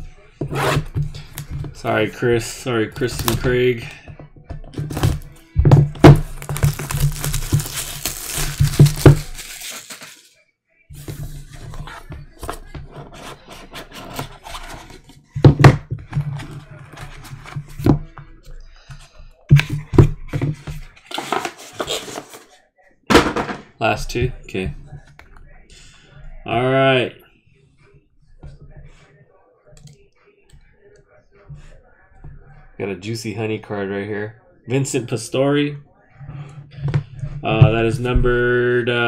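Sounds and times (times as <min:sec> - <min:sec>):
plastic wrap crinkling and tearing: 0:06.0 - 0:10.4.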